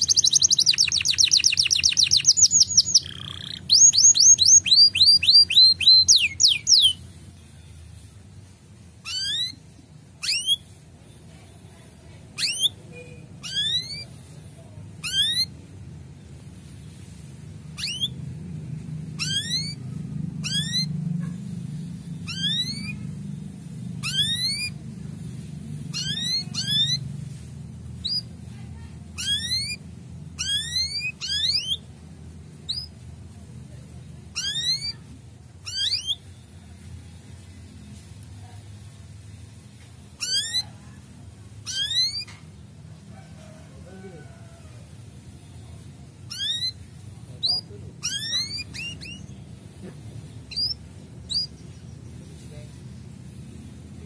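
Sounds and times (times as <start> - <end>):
canary calls: 0.0 - 7.0, 9.0 - 10.7, 12.4 - 14.4, 15.0 - 15.6, 17.7 - 18.3, 19.1 - 23.2, 24.0 - 24.8, 25.8 - 27.2, 29.1 - 31.9, 32.6 - 32.9, 34.2 - 36.6, 40.2 - 42.5, 46.2 - 51.7.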